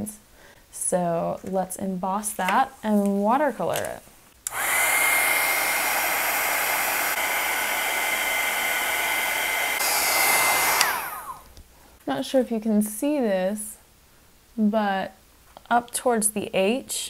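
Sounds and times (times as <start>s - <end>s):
heat tool blowing air: 4.5s - 11.6s.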